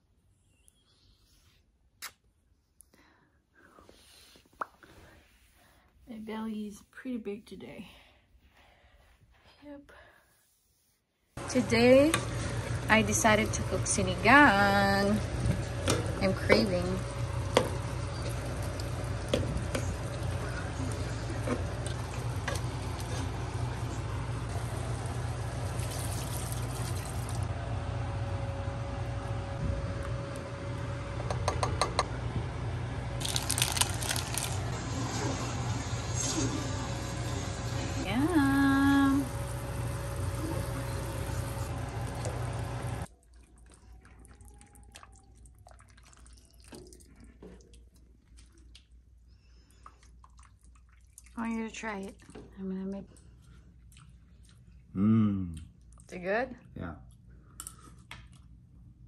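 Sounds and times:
soup boiling: 13.6 - 27.5
water pouring into pot: 17.0 - 27.5, 33.2 - 34.7
broth dripping and pouring: 17.2 - 27.5, 43.1 - 52.4.

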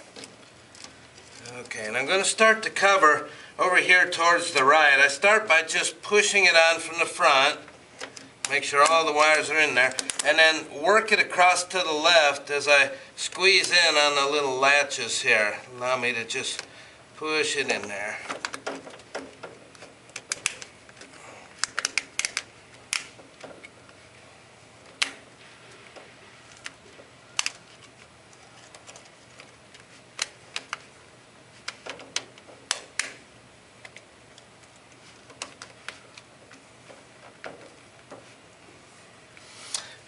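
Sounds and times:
plastic latches snapping: 18.2 - 23.8, 24.8 - 25.3, 26.5 - 28.0, 28.6 - 30.9, 31.6 - 38.3.

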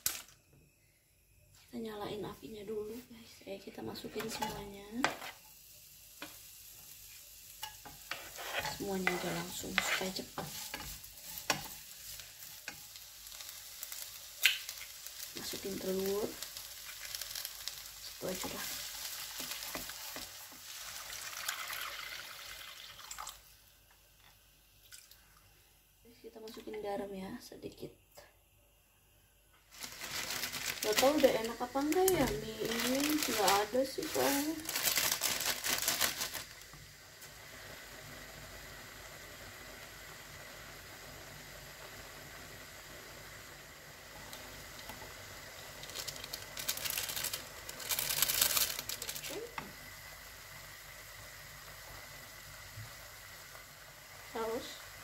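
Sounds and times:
food sizzling in oil: 1.9 - 23.8, 29.6 - 55.0
water hissing in hot pan: 2.1 - 23.8, 29.6 - 55.0
wooden spatula scraping pan: 8.0 - 11.8
plastic sachet crinkling: 29.7 - 36.6, 45.8 - 49.5.

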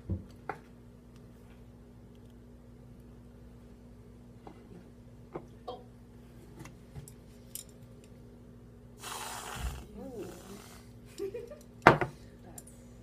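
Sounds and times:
aerosol whipped cream hiss: 9.0 - 10.9.

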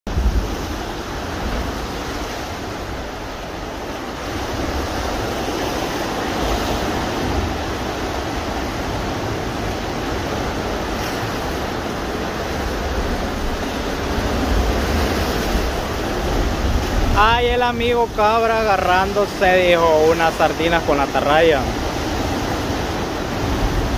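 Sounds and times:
wind rumbling on microphone: 0.1 - 17.8, 21.7 - 23.9
surf breaking against rocks: 0.1 - 23.9.

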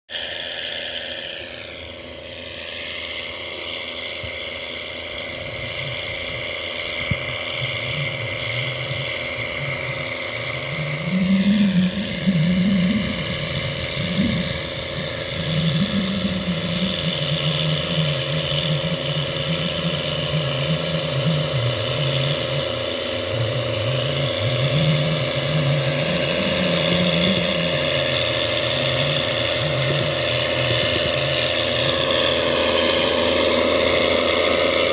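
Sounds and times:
steady high whine: 0.0 - 34.9
tractor engine under load: 8.4 - 34.9.

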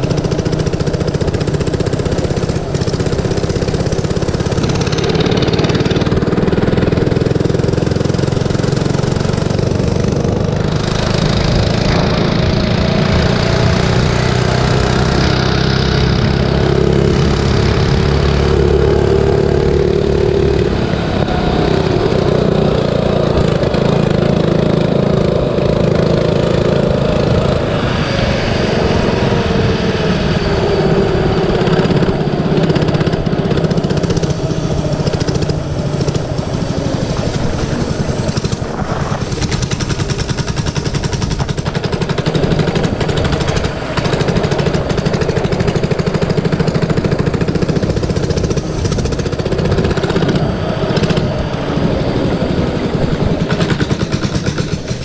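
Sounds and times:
mini bike engine revving: 0.0 - 55.0
wind noise on microphone: 0.0 - 55.0.

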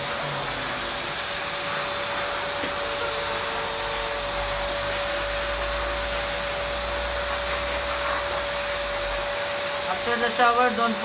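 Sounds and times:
blow dryer running: 0.0 - 11.0.

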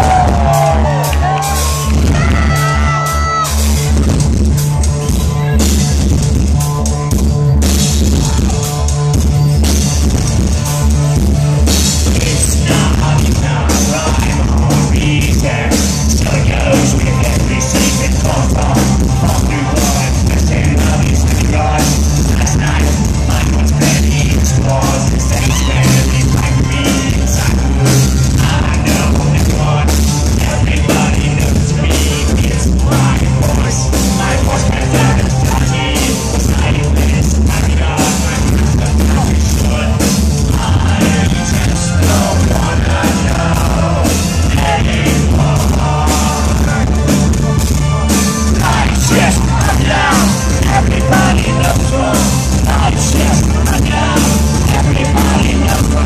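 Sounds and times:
pounding drum and electronic beat: 0.0 - 56.0
person singing: 12.0 - 47.5, 48.5 - 56.0.

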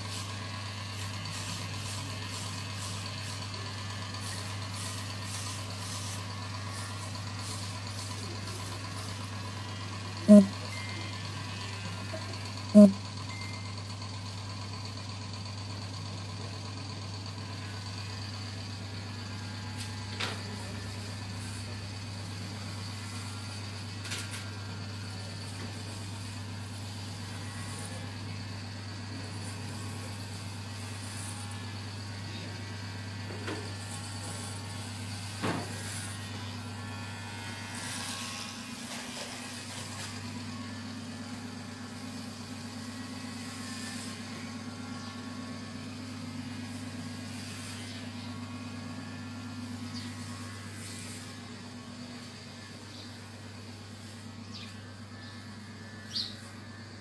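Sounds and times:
electric hair clippers buzzing: 19.0 - 57.0.

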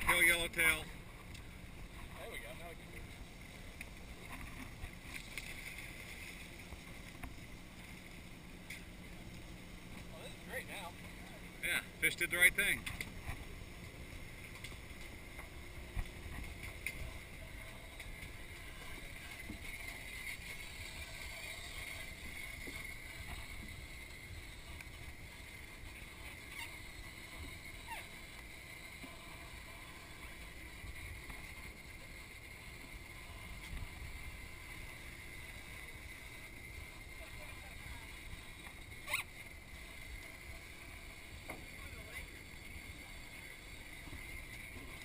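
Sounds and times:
boat rumbling at sea: 0.0 - 45.0
faint clicks: 1.3 - 1.5.

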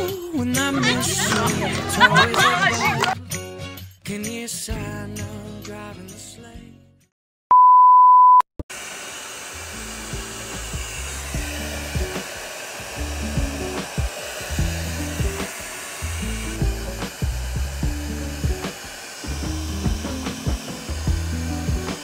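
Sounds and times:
background music: 0.0 - 7.0, 9.8 - 22.0
hair dryer running: 0.8 - 3.2, 8.7 - 22.0
high beep: 7.5 - 8.4.

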